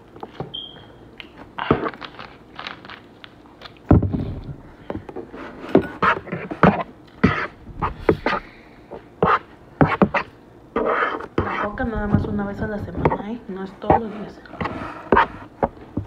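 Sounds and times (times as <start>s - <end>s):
heavy thump: 7.5s - 8.5s, 11.7s - 13.2s.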